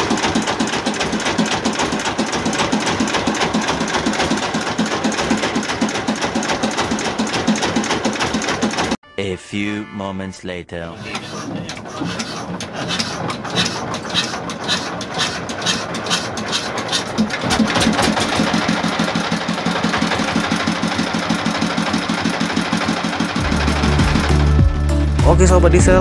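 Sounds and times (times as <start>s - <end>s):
diesel engine running: 0.0s - 9.0s, 11.0s - 26.0s.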